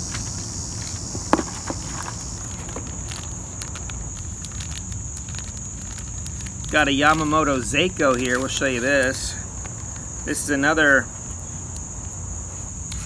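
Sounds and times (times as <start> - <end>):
plastic packaging rustling: 0.0 - 9.3
insects chirring: 0.0 - 13.0.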